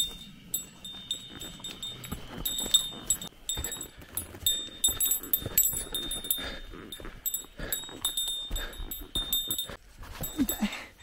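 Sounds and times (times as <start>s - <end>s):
footsteps scuffing on slope: 0.0s - 10.6s
small metal bell jingling: 0.0s - 11.0s.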